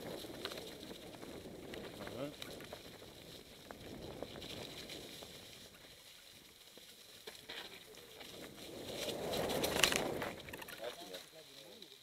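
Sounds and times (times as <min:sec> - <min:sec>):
bike clicks and rattles: 0:00.0 - 0:11.3
bike tyres crunching dry leaves: 0:00.0 - 0:12.0.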